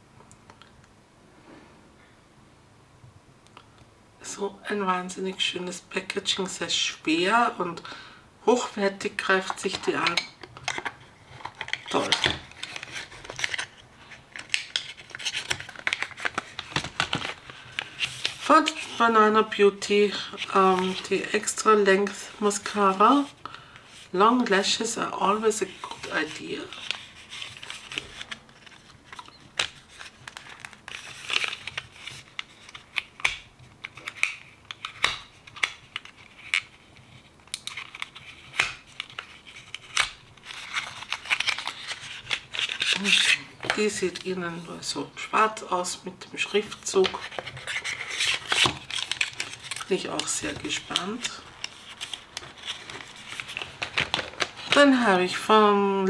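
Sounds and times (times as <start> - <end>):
cardboard box crinkling: 10.7 - 19.0, 26.6 - 33.1, 33.8 - 43.8, 47.0 - 54.8.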